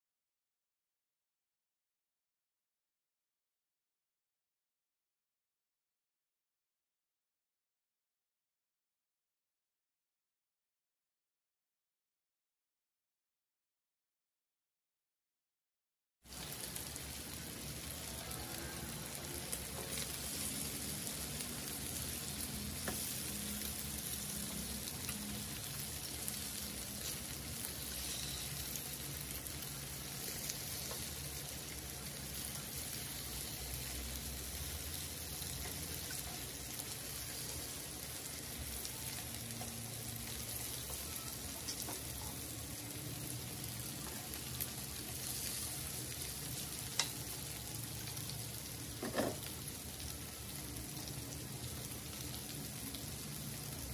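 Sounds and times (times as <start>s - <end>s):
meat sizzling on grill: 16.2s - 53.9s.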